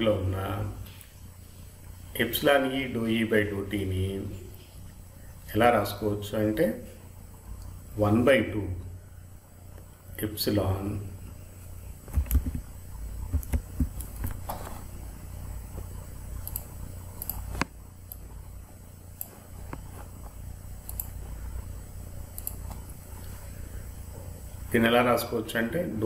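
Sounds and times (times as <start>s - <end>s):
low steady hum: 0.0s - 26.0s
computer mouse clicks: 12.1s - 14.4s, 16.4s - 18.3s, 19.2s - 21.2s, 22.3s - 23.0s.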